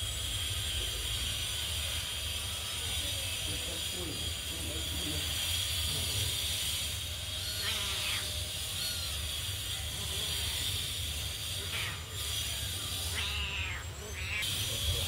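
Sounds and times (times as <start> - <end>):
kittens mewing: 5.2 - 15.0.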